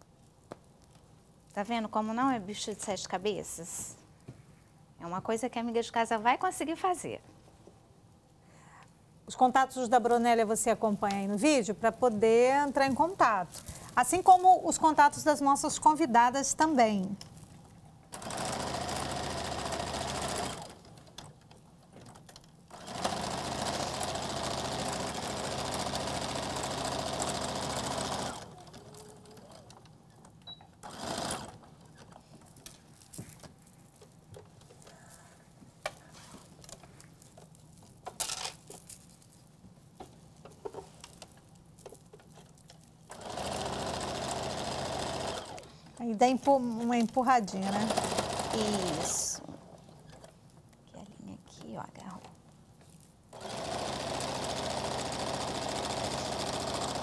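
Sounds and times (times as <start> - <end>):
sewing machine stitching: 18.1 - 21.3, 22.7 - 29.9, 30.8 - 31.8, 43.1 - 45.7, 47.6 - 50.3, 53.3 - 57.0.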